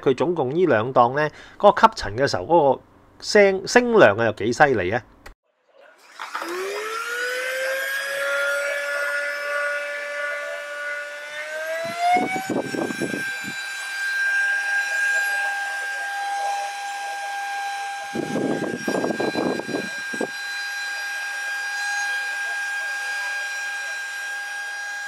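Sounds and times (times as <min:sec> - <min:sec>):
vacuum motor whining: 0:06.0 - 0:25.0.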